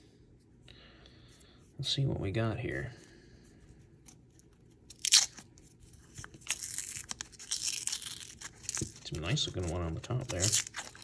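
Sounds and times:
paper wrapper tearing: 4.9 - 11.0.

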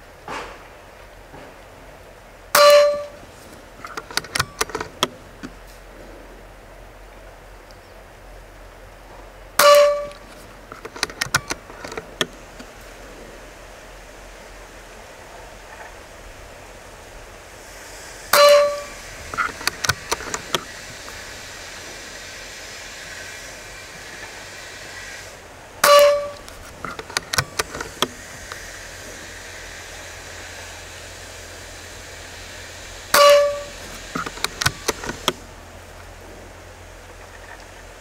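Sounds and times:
wind hissing: 0.0 - 38.0
rifle action clicking: 3.8 - 5.6, 9.6 - 12.7, 18.4 - 20.8, 25.8 - 28.6, 33.2 - 35.4
air rifle shots: 9.6 - 12.6, 25.8 - 28.3.

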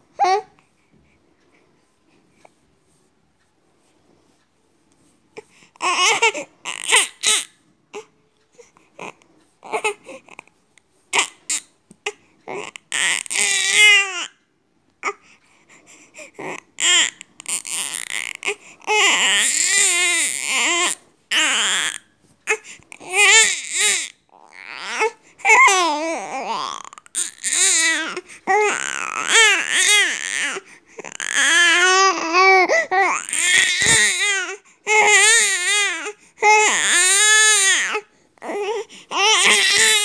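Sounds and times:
baby crying: 5.8 - 8.1, 11.2 - 14.3, 16.4 - 40.0.

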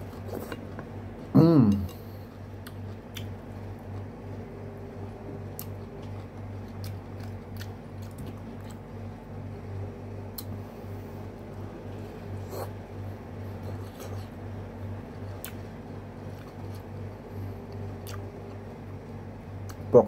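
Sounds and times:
person chewing: 0.0 - 4.2, 5.4 - 8.9, 10.3 - 10.6, 11.4 - 14.4, 15.0 - 18.7
steady low hum: 0.0 - 20.0.

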